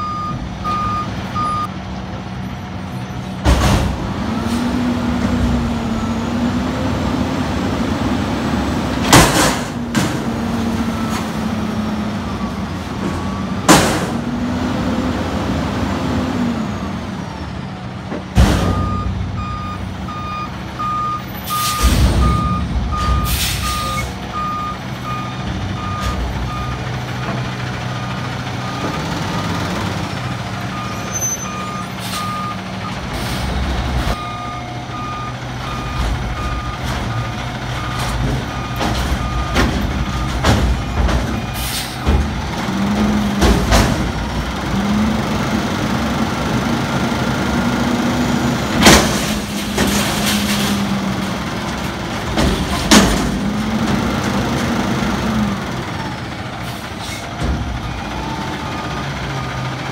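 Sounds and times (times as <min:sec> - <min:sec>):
reverse alarm beeping: 0:00.0 - 0:01.7, 0:18.6 - 0:26.8, 0:30.7 - 0:33.0, 0:34.2 - 0:41.6
loud metal bangs: 0:21.7 - 0:24.2
garbage truck hydraulics running: 0:35.6 - 0:59.9.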